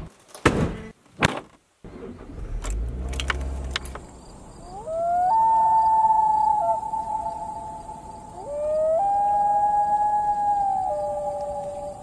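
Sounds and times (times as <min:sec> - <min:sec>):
low rumble with clicks: 0:01.9 - 0:04.8.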